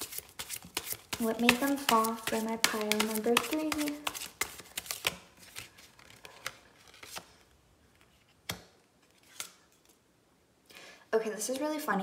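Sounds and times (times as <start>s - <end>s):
cards being shuffled: 0.0s - 10.0s
cards tapped on cloth: 0.8s - 5.2s.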